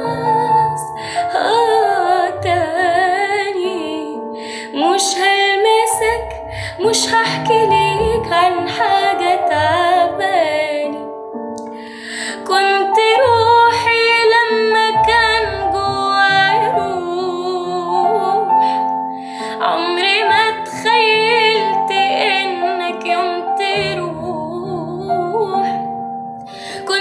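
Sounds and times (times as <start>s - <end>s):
woman singing with vibrato: 0.0s - 11.0s, 12.3s - 18.8s, 19.4s - 25.8s, 26.8s - 27.0s
soft instrumental backing track: 5.2s - 12.1s.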